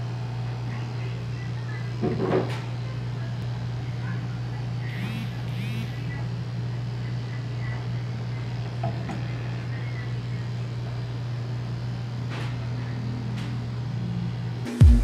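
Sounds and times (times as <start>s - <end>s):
electric clipper buzzing: 4.9s - 6.2s.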